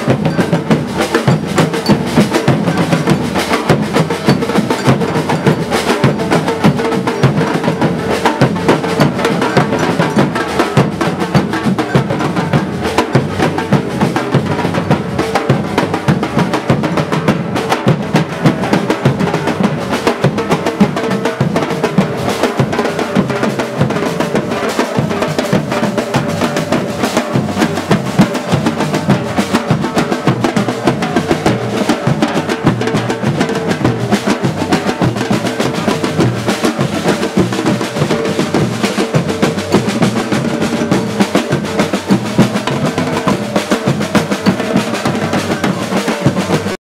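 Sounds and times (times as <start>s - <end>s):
drums beating rolling rhythm: 0.0s - 46.8s.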